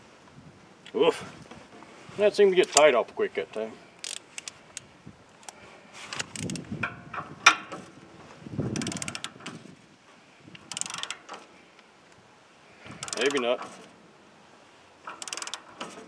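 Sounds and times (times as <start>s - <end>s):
handle crank clicking: 4.0s - 7.8s, 8.8s - 9.5s, 10.6s - 11.5s, 12.9s - 13.9s, 15.0s - 16.0s.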